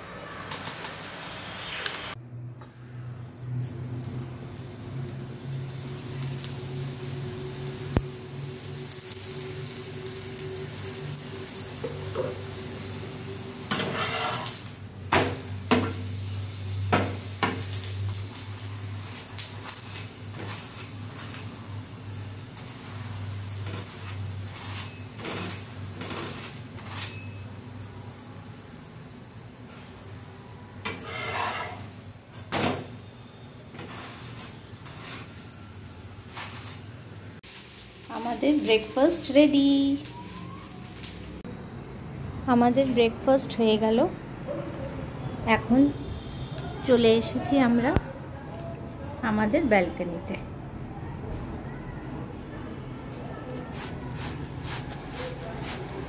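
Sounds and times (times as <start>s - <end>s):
flatbread sizzling in oil: 3.4s - 32.2s, 32.9s - 41.4s
metal spatula scraping a pan: 13.6s - 14.7s, 23.6s - 27.4s, 30.8s - 32.0s.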